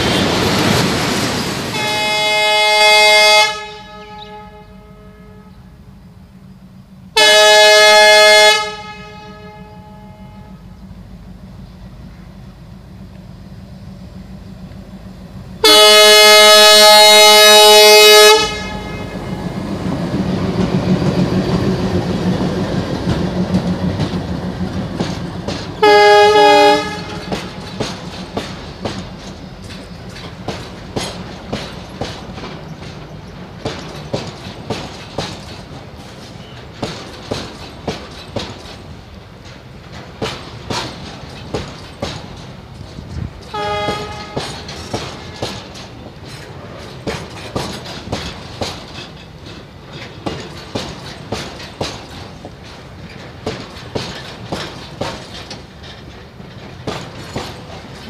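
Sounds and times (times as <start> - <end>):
locomotive horn blast: 1.7 - 5.8, 7.1 - 10.8, 15.6 - 19.7, 25.8 - 27.7, 43.4 - 45.5
diesel engine rumble: 8.8 - 16.0
wagon wheels clattering over rail joints: 19.8 - 58.0.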